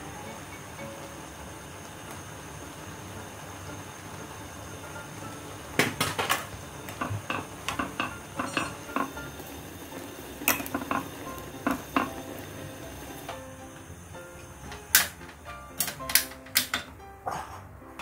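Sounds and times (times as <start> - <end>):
metal tongs clacking against a pot: 6.0 - 9.4, 10.4 - 12.4, 14.9 - 16.9.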